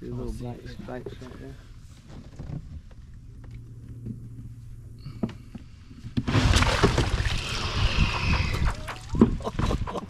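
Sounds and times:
faint low hum: 0.0s - 9.6s
water plants rustling and splashing: 6.3s - 9.5s.

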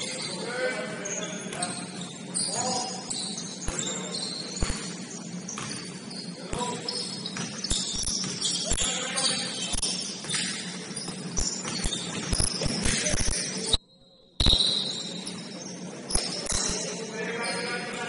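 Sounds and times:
players' voices: 0.0s - 7.3s, 15.1s - 18.0s
sneakers squeaking on floor: 0.0s - 13.8s, 14.4s - 18.0s
basketball bouncing: 4.5s - 5.9s, 6.5s - 8.9s, 9.7s - 13.5s.

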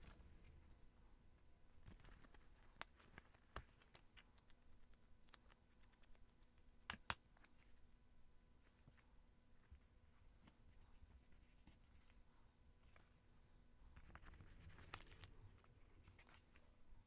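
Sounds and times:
paper rustling: 14.0s - 16.7s.

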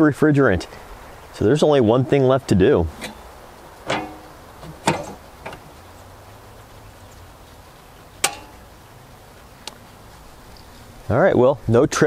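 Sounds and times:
metal box cover clanking: 2.9s - 5.8s, 8.2s - 8.7s.

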